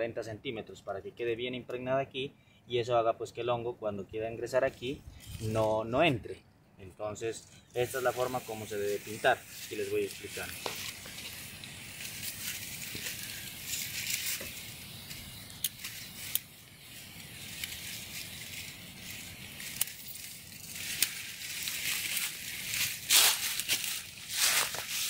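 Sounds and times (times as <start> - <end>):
sprayer nozzle hissing in spurts: 7.7 - 25.0.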